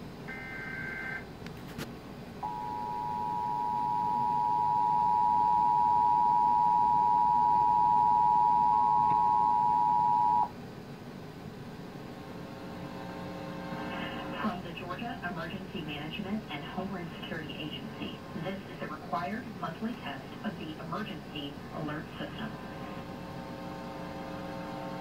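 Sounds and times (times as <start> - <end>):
two-tone alert signal: 2.4 - 10.5.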